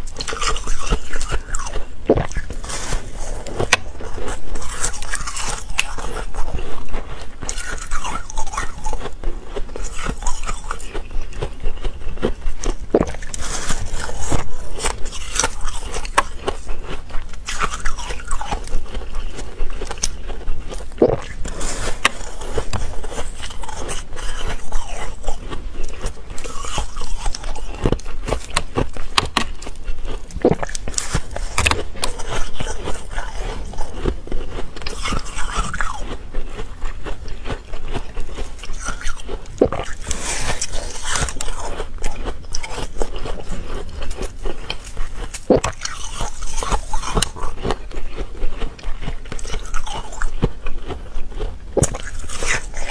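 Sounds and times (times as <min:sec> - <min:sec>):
chewing crunchy ice: 0:00.0 - 0:52.9.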